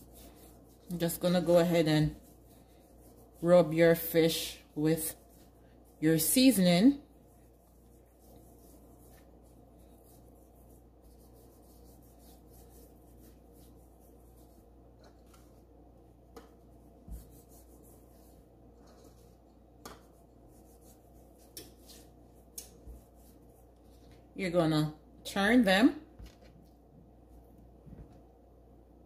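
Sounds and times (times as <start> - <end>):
hand rubbing fish fillets: 0.0 - 24.3
steady low hum: 0.0 - 25.4.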